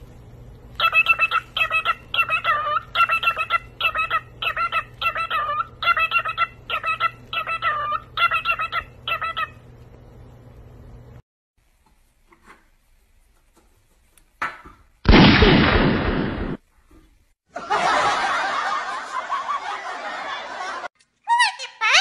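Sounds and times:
loud sudden bang: 15.1s - 16.6s
people laughing: 17.6s - 20.9s.

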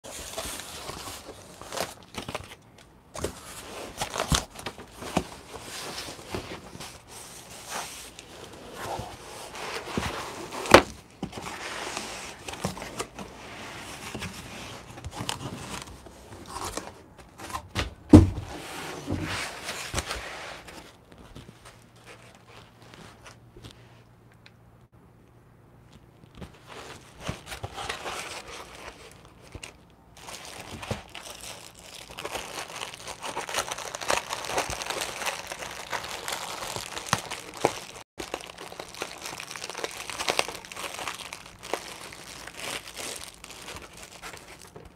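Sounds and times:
cardboard scraping: 3.2s - 24.0s, 26.3s - 29.7s
heavy thump: 17.8s - 18.5s.

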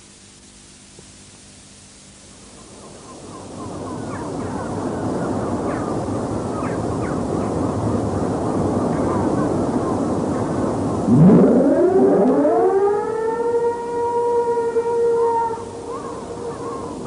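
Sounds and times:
steady rushing background noise: 2.3s - 12.7s
siren winding up: 11.1s - 15.6s.

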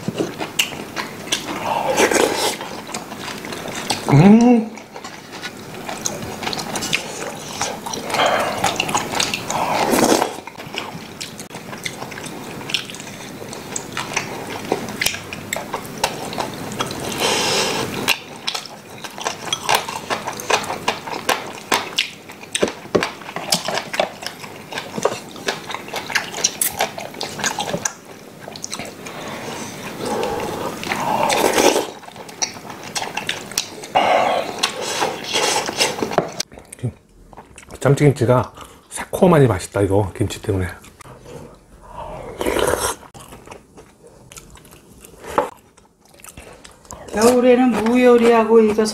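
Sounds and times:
people chewing: 0.0s - 39.4s, 40.1s - 48.9s
people slurping: 1.4s - 2.8s, 5.9s - 10.6s, 28.8s - 32.0s, 33.8s - 36.2s, 41.0s - 43.1s.

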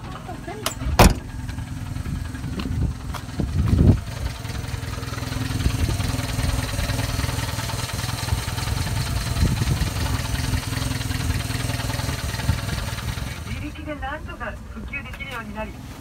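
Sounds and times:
engine idling: 0.0s - 15.8s
loud low thump: 0.8s - 1.5s.

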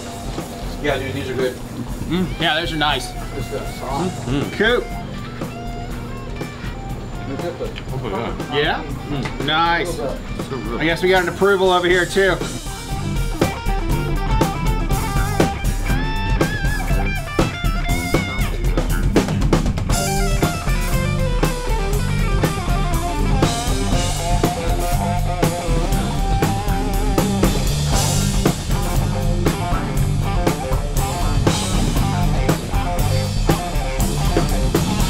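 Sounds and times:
bass guitar: 0.0s - 35.0s
drum kit beat: 0.0s - 35.0s
guitars playing: 0.0s - 35.0s.

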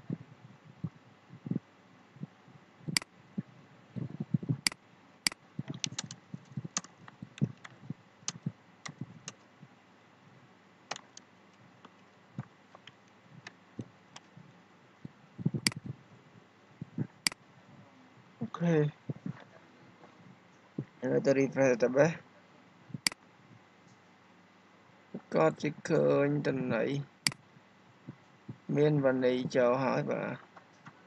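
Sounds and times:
keyboard typing: 4.5s - 9.4s, 10.9s - 14.3s, 15.4s - 16.0s
mouse clicks: 4.6s - 9.4s, 10.9s - 12.0s, 15.5s - 15.9s.

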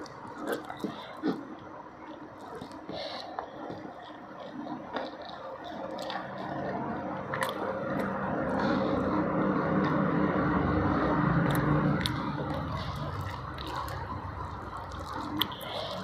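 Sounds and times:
wet eating clicks and smacks: 0.0s - 10.1s, 10.9s - 16.0s
vehicle engine running: 6.7s - 16.0s.

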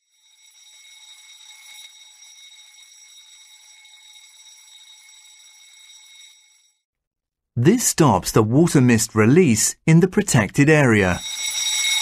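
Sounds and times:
alarm bell ringing: 0.0s - 6.8s, 11.0s - 12.0s.

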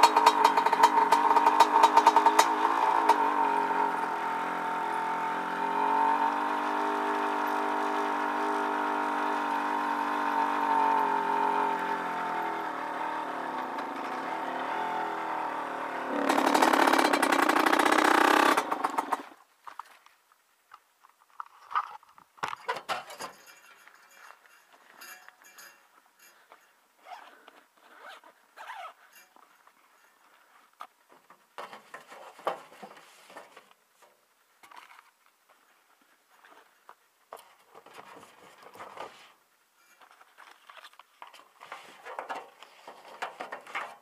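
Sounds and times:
dirt bike engine revving: 0.0s - 19.4s
small knocks and rustles: 29.0s - 44.0s.

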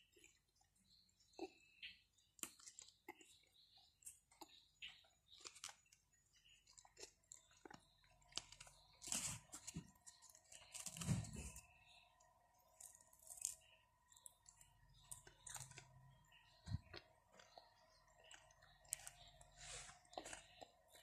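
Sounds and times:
person chewing: 1.2s - 11.6s, 12.2s - 21.0s
small clicks and crackles: 4.0s - 11.6s, 12.2s - 16.0s.

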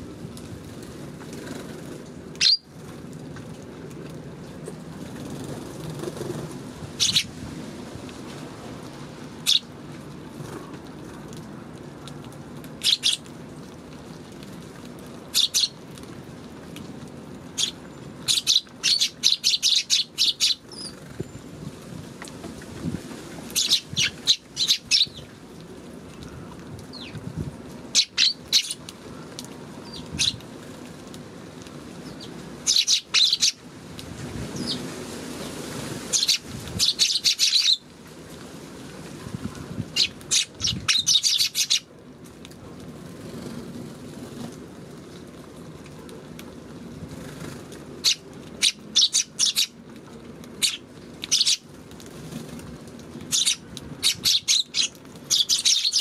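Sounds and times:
sparrows chirping: 2.4s - 2.7s, 7.0s - 7.3s, 9.4s - 9.7s, 12.8s - 13.2s, 15.4s - 15.8s, 17.6s - 21.5s, 23.6s - 25.3s, 27.9s - 28.8s, 29.8s - 30.4s, 32.0s - 33.6s, 36.1s - 37.8s, 39.9s - 41.9s, 48.0s - 49.8s, 50.6s - 51.6s, 53.3s - 56.0s.

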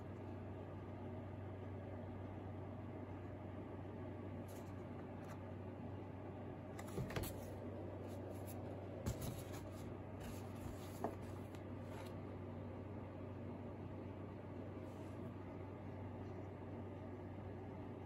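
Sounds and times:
steady low hum: 0.0s - 18.0s
paper rustling: 8.1s - 12.2s.

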